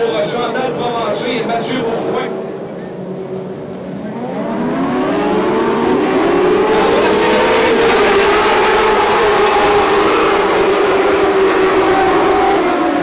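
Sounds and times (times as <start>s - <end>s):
race car engines accelerating: 0.0s - 13.0s.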